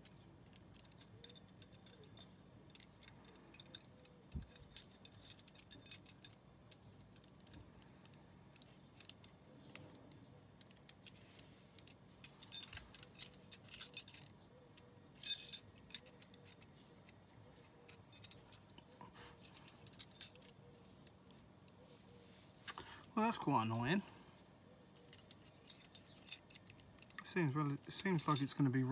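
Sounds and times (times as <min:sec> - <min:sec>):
metal puzzle pieces clinking: 0:00.0 - 0:18.7, 0:25.0 - 0:28.9.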